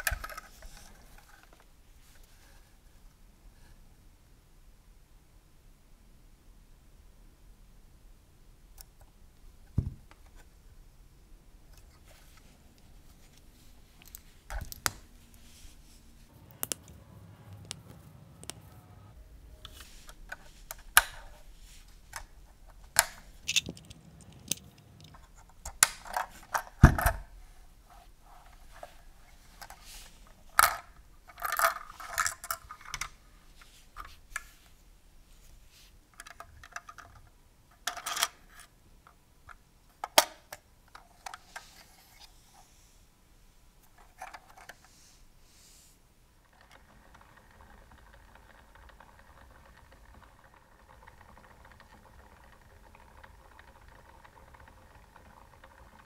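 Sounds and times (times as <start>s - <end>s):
plastic toy bricks clicking: 22.1s - 27.2s, 30.5s - 33.1s, 46.5s - 56.0s.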